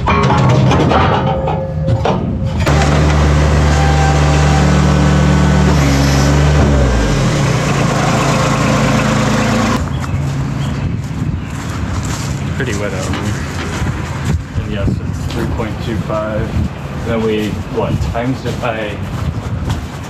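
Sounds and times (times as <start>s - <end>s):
diesel engine running: 2.5s - 14.5s.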